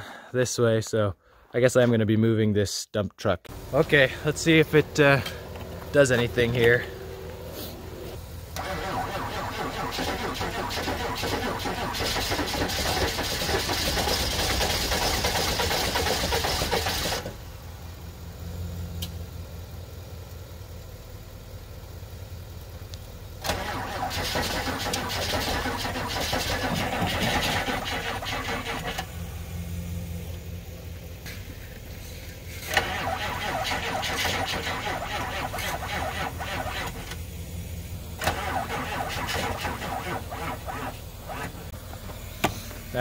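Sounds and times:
truck engine cranking: 0:03.5 - 0:17.4, 0:23.4 - 0:29.2, 0:32.5 - 0:37.2, 0:38.2 - 0:41.8
engine idling: 0:03.5 - 0:43.0.

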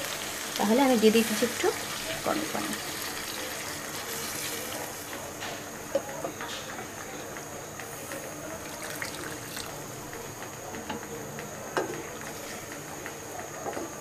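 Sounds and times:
curry bubbling and popping: 0:08.6 - 0:10.2.

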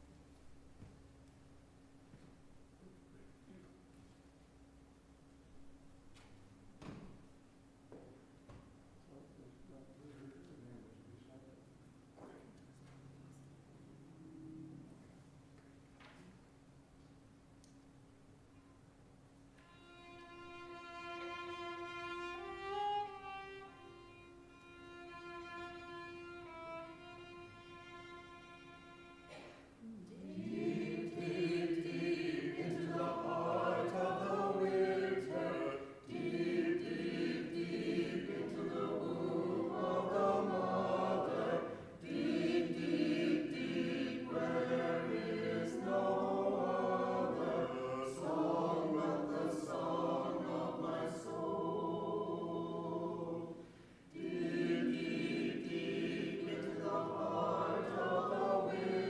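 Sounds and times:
group singing slow song: 0:29.3 - 0:59.0.

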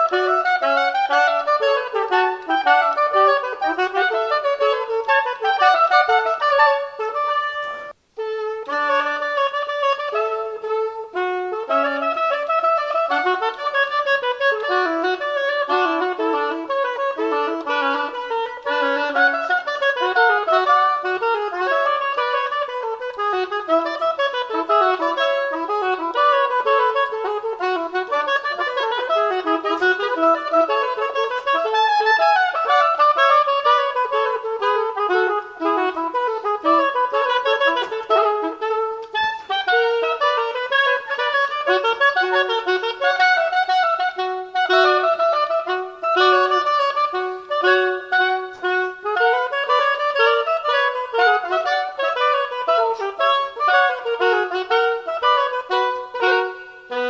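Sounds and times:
two oboes playing: 0:00.0 - 0:57.0.

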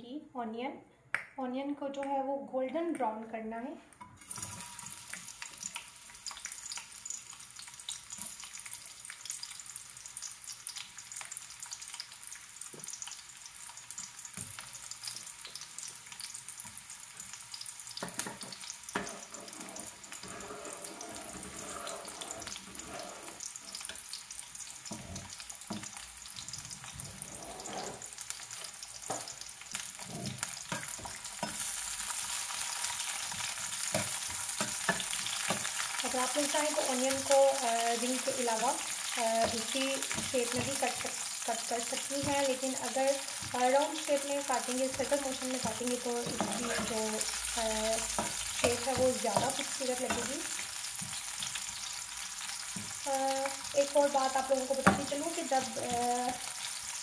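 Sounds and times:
onions sizzling in hot oil: 0:04.2 - 0:57.0
spatula stirring in pan: 0:13.9 - 0:56.8.

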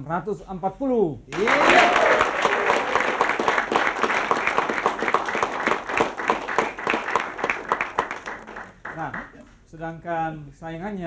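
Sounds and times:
hands clapping: 0:01.3 - 0:09.6.

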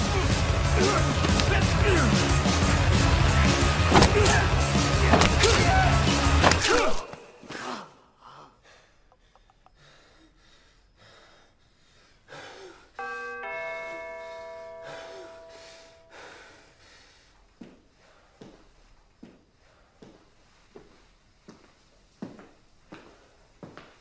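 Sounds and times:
heavy breathing: 0:07.1 - 0:13.0, 0:14.2 - 0:18.8
doorbell ding-dong chime: 0:13.0 - 0:16.2.

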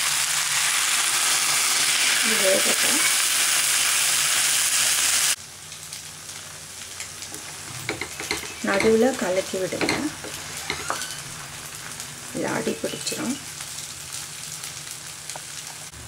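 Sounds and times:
okra sizzling in hot oil: 0:00.0 - 0:16.0
quiet hiss with crackles: 0:05.4 - 0:16.0.

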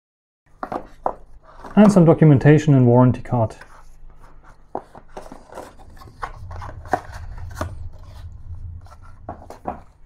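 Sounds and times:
paper and cardboard rustling: 0:00.5 - 0:02.4, 0:03.5 - 0:10.0
low rumble: 0:05.1 - 0:10.0.

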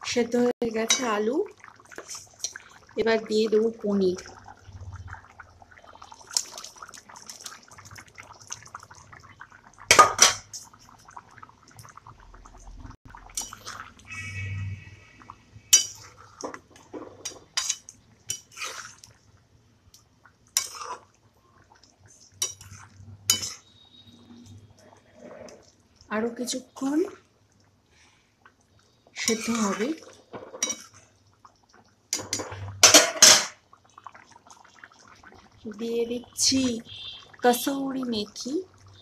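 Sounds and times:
wet squelch of sauce: 0:10.6 - 0:19.2
spatula scraping a pan: 0:15.7 - 0:19.1, 0:20.6 - 0:21.1, 0:22.4 - 0:23.9, 0:29.2 - 0:31.0.

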